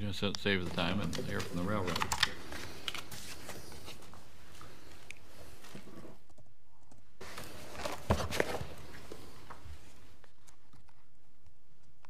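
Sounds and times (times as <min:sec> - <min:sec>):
papers rustling: 0:00.5 - 0:06.2, 0:07.2 - 0:11.1.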